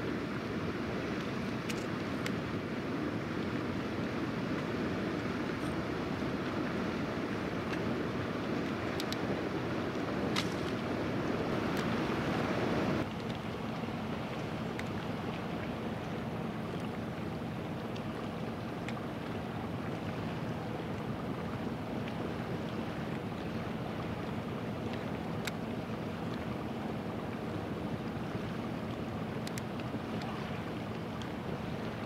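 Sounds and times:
water: 0.0 - 32.0
wind: 0.0 - 32.0
faint clicks: 1.6 - 2.4, 8.6 - 9.2, 24.9 - 25.6, 29.4 - 31.4.

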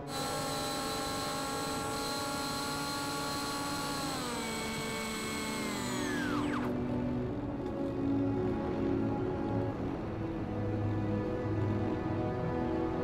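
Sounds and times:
model plane motor whining: 0.0 - 6.9.

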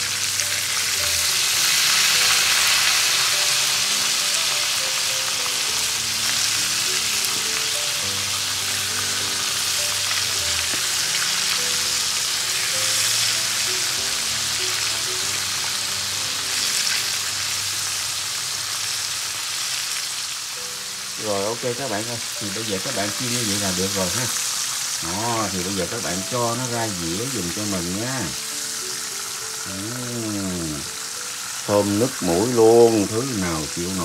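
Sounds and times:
food deep-frying in oil: 0.0 - 34.0
soft background music: 0.0 - 34.0.

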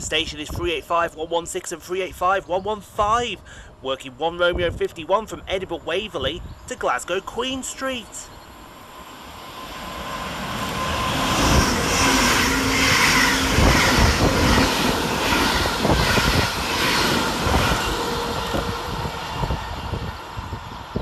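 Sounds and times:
electric train passing at speed: 7.7 - 21.0
wheels rushing on rail: 8.3 - 21.0.

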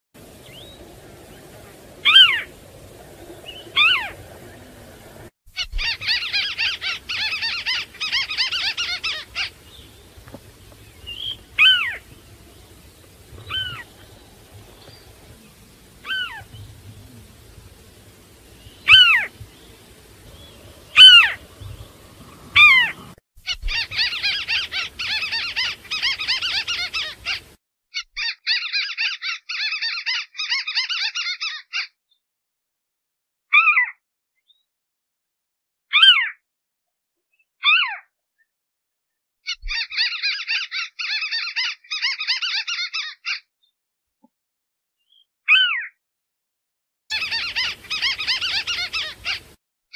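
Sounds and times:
bird rapid chattering: 0.3 - 27.5, 47.1 - 49.5.

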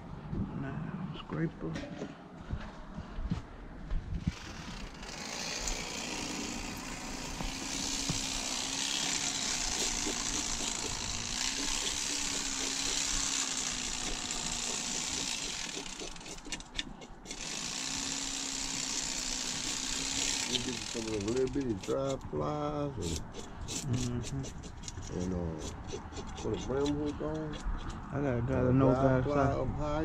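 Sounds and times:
small motor humming: 4.2 - 22.1.

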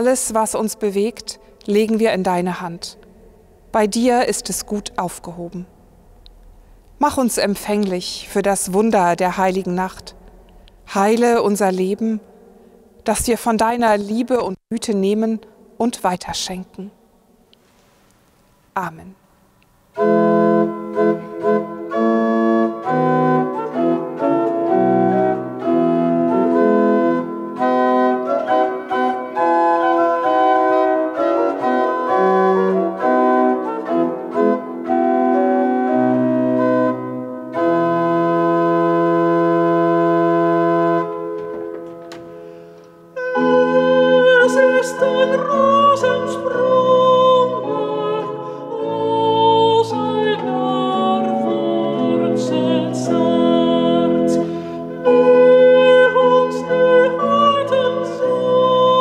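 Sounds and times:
pipe organ playing: 20.0 - 42.3, 43.1 - 59.0
man singing: 43.2 - 47.8.

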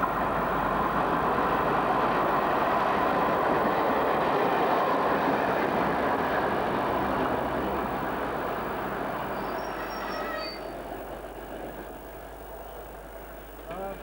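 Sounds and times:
diesel train passing: 0.0 - 14.0.

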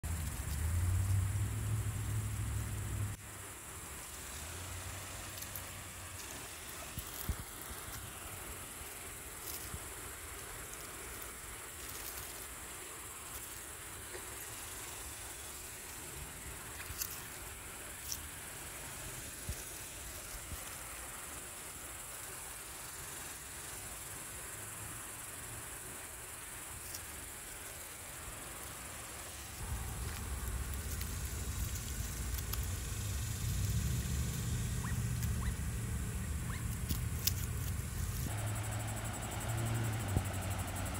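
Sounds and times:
insects droning: 0.0 - 40.9.

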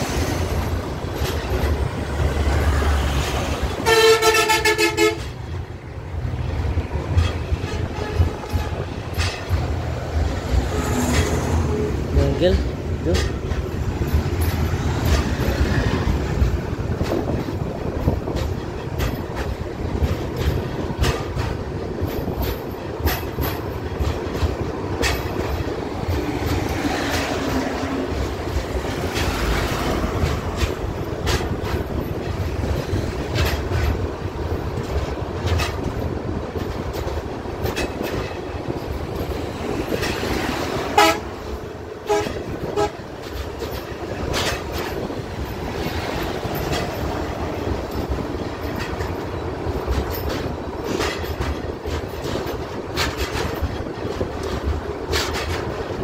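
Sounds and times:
clicks over rail joints: 0.0 - 56.0
train wheels rumbling on rail: 0.0 - 56.0.

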